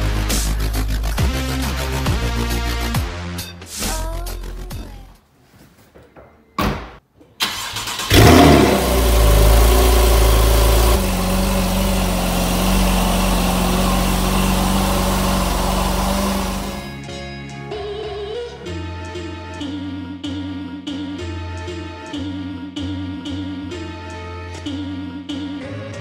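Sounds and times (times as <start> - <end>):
car engine starting and idling: 7.4 - 16.9.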